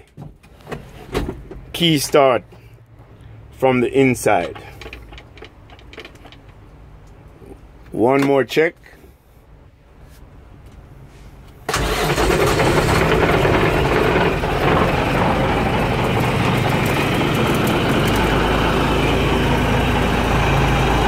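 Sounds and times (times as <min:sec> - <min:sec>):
diesel engine starting and idling: 0:03.4 - 0:06.8, 0:11.5 - 0:21.0.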